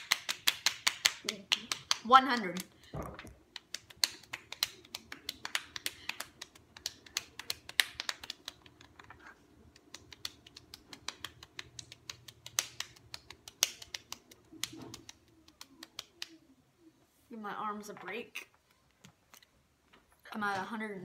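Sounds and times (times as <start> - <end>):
hands slapping cheeks: 0.0 - 2.7, 3.3 - 16.5.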